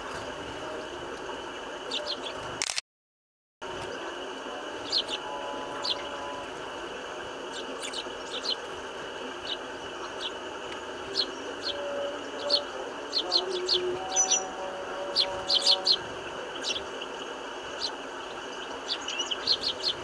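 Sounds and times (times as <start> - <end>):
sparrows chirping: 1.9 - 2.4, 4.7 - 6.6, 7.4 - 20.0.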